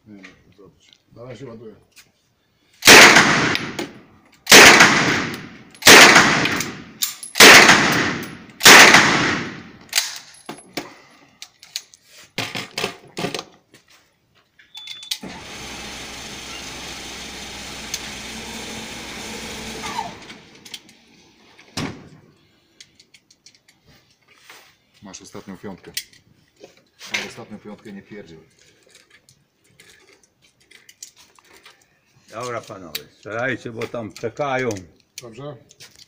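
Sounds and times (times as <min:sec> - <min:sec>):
echoing gunshots: 0:02.8 - 0:09.8
electric target carrier running: 0:15.2 - 0:20.8.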